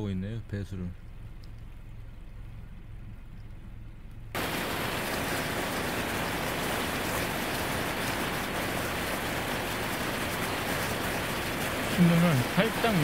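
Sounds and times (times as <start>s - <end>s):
faint low rumble: 0.0s - 8.1s
water rushing through sluice gate: 4.4s - 13.0s.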